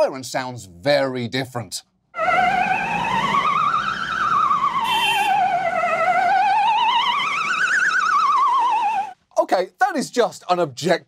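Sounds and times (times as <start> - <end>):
traffic noise: 2.2 - 8.5
ambulance siren warbling: 2.2 - 9.2.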